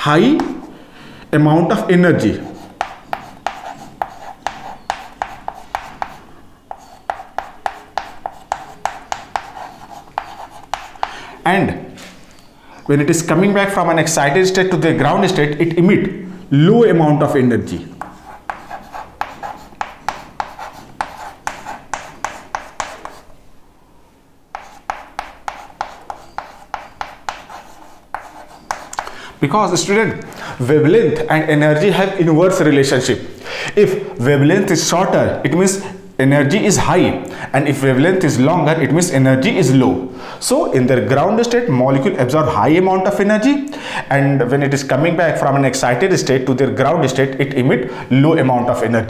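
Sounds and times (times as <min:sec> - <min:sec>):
chalk tapping on chalkboard: 0:00.3 - 0:00.7, 0:02.4 - 0:11.2, 0:18.0 - 0:23.3, 0:24.5 - 0:29.2.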